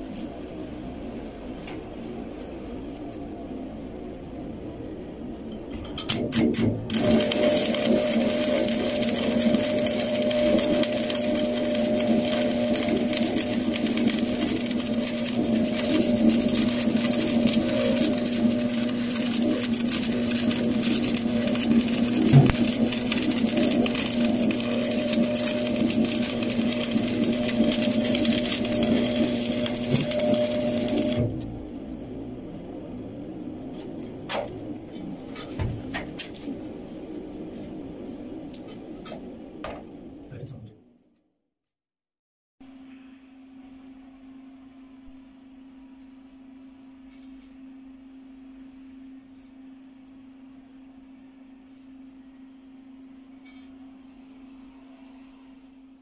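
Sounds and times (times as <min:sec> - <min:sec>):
low hum: 0:00.0 - 0:41.2
welding arc crackling and hissing: 0:06.8 - 0:31.6.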